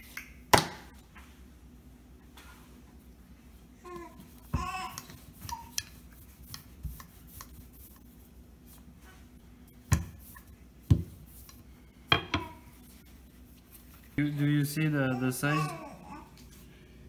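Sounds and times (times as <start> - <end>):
rolling pin rubbing dough: 4.1 - 15.7.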